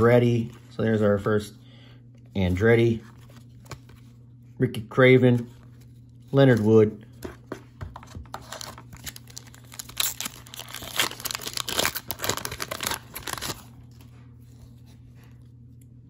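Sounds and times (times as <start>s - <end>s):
foil wrapper crinkling: 8.4s - 14.1s.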